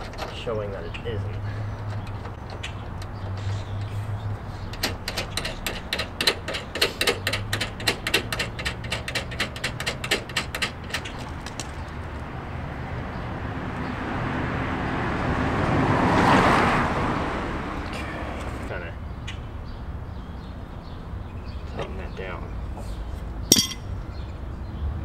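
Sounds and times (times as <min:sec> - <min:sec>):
hand tool clicking: 0:04.7 - 0:11.1, 0:23.5 - 0:23.8.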